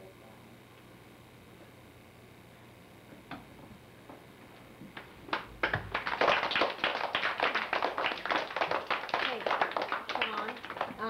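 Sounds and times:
children applauding: 5.3s - 11.0s.

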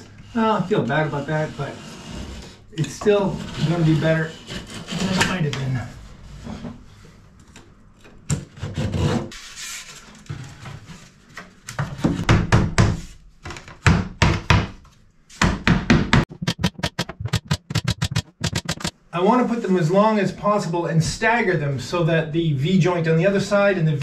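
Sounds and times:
hammer knocking wooden boards: 12.1s - 13.0s, 15.4s - 18.9s.

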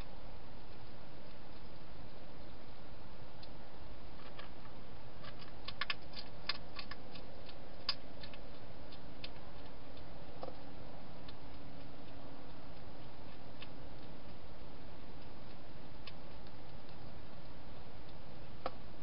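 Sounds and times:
steady hiss: 0.0s - 19.0s
hedgehog crunching dry food: 3.3s - 18.5s.

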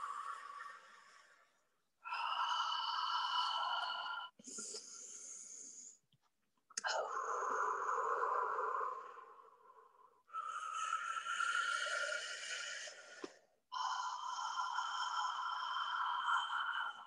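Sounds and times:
woman's breathy held vocal tones: 0.0s - 6.0s.

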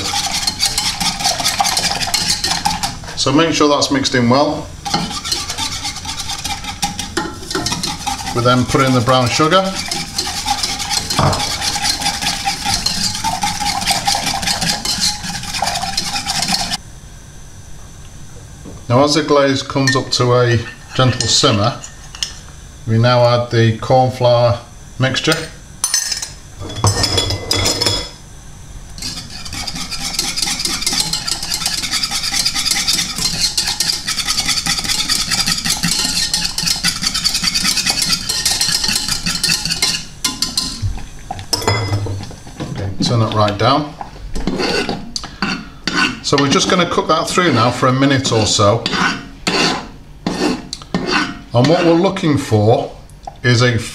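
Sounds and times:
whisk beating in metal saucepan: 0.0s - 16.8s, 29.0s - 52.2s.

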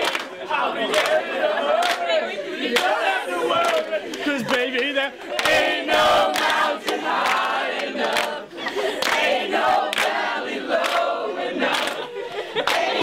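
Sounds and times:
scattered clapping: 0.0s - 13.0s
teenagers laughing: 0.3s - 5.9s, 8.4s - 9.6s, 11.5s - 13.0s.

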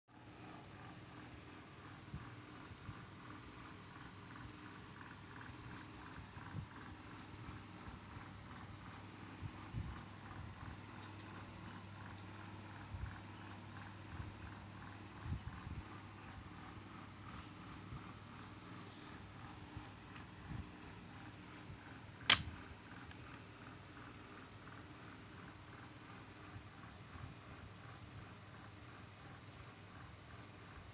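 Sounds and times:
cricket chirping trill: 0.1s - 30.9s.

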